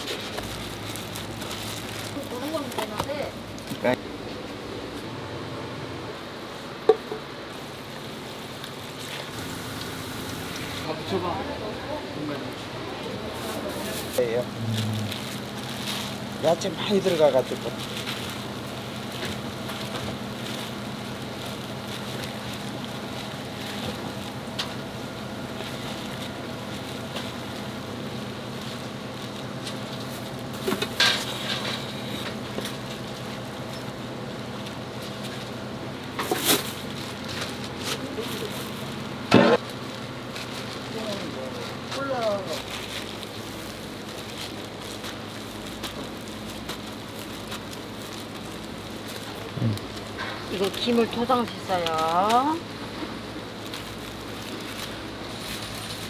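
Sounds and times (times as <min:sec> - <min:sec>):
kitchen hum: 0:00.0 - 0:56.0
faint clicks and crackles: 0:39.6 - 0:52.5.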